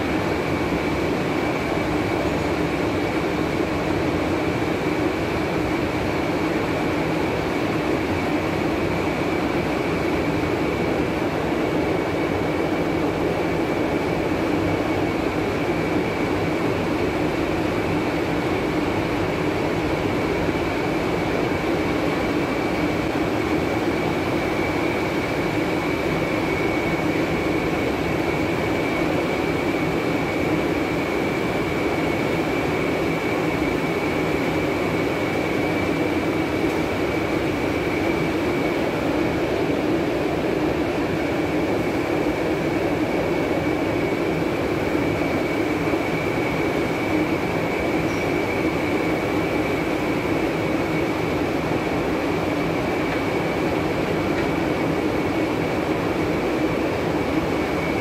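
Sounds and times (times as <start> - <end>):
high mechanical whine: 0.0 - 58.0.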